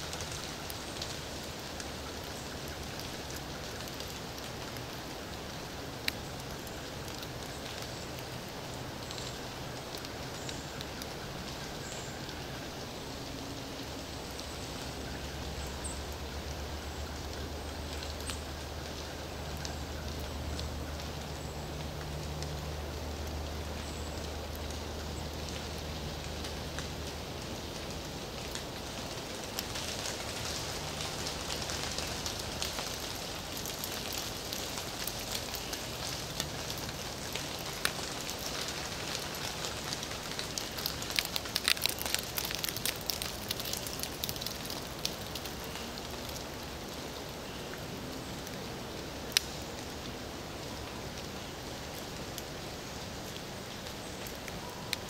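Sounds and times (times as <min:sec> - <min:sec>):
rain drips pattering on leaves: 0:00.0 - 0:55.0.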